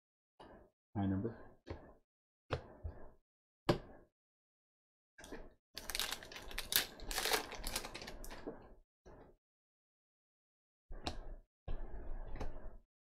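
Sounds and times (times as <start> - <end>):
foil wrapper tearing and crinkling: 5.8 - 8.3.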